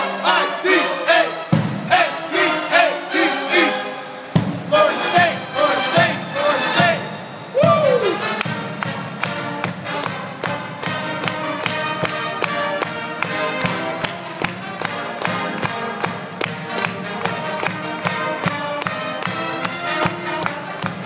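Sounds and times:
brass band playing: 0.0s - 21.0s
drum beat: 1.6s - 2.2s, 4.4s - 7.0s, 7.6s - 14.7s.

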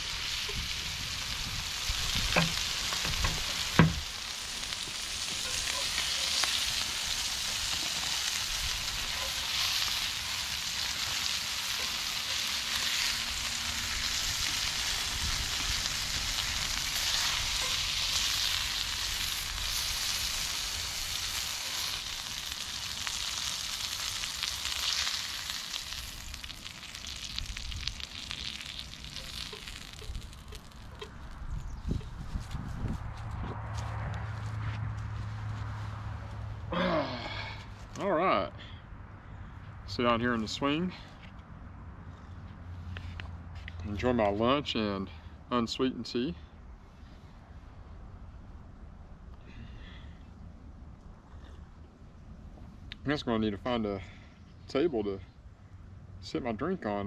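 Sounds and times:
chicken sizzling in skillet: 0.0s - 31.0s
sharp knocks: 2.4s - 4.0s.

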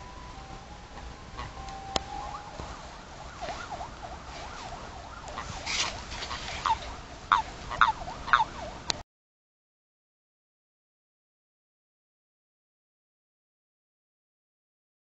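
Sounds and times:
toads chirping calls: 5.3s - 8.5s.

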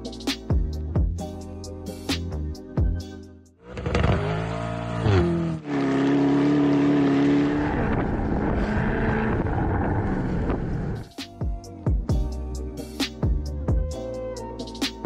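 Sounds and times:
car engine accelerating: 3.6s - 11.1s.

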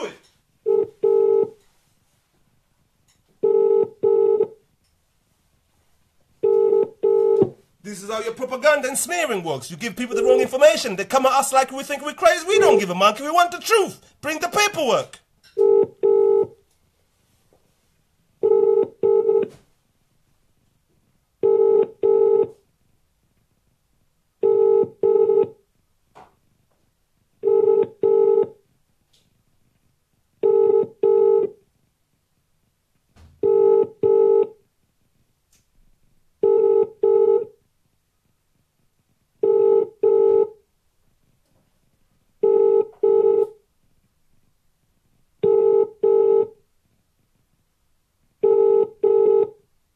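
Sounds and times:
telephone ringing tone: 0.6s - 1.6s, 3.4s - 4.6s, 6.4s - 7.5s, 10.2s - 10.8s, 15.6s - 16.6s, 18.4s - 19.5s, 21.4s - 22.6s, 24.4s - 25.6s, 27.4s - 28.6s, 30.4s - 31.6s, 33.4s - 34.6s, 36.4s - 37.5s, 39.4s - 40.6s, 42.4s - 43.6s, 45.4s - 46.6s, 48.4s - 49.6s.

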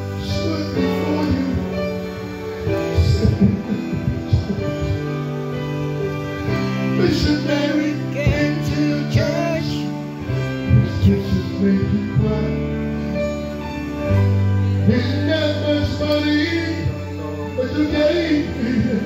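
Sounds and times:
person singing gospel song: 0.0s - 5.3s, 6.4s - 13.1s, 14.8s - 19.0s
guitar-led backing music: 0.0s - 19.0s.

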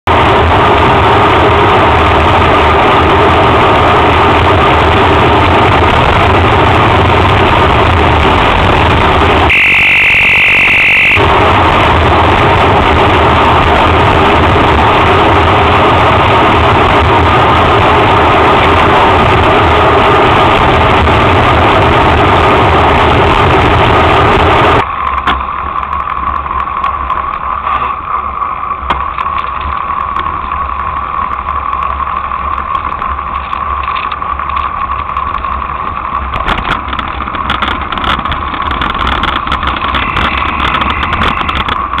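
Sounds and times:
idling traffic engines rumbling: 0.0s - 42.0s
rushing wind and road noise: 0.0s - 42.0s
steady hum: 0.1s - 24.9s
sharp clicks and knocks: 24.9s - 27.8s, 28.8s - 42.0s.

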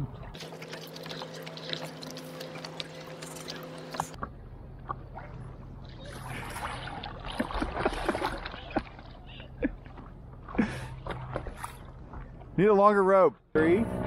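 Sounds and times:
steady low hum: 0.0s - 14.0s
water splashing and rushing: 0.4s - 4.2s, 5.0s - 12.4s.

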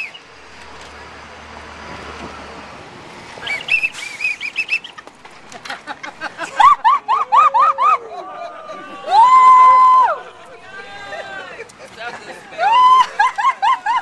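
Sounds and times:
whistle tweets: 0.0s - 0.3s, 3.4s - 5.0s.

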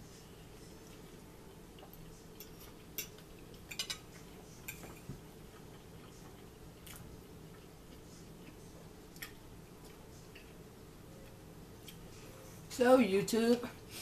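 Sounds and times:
low room hum: 0.0s - 14.0s
cutlery clinking on plates: 2.4s - 5.2s.

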